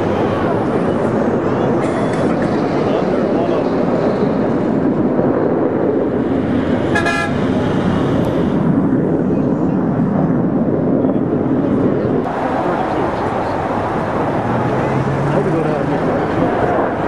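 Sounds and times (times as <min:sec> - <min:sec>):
short horn toot: 0:07.0 - 0:07.4.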